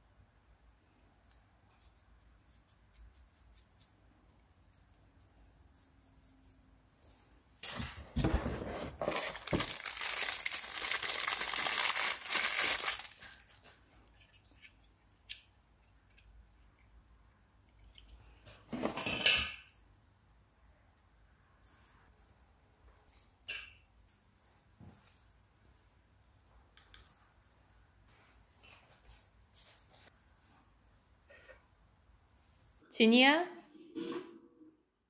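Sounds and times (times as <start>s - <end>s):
plastic wrapping crinkling and tearing: 8.9s - 13.8s.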